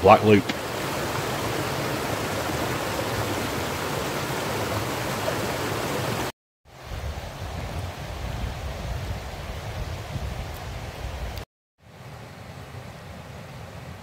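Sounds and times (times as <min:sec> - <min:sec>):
river rushing over rocks: 0:00.0 - 0:06.3.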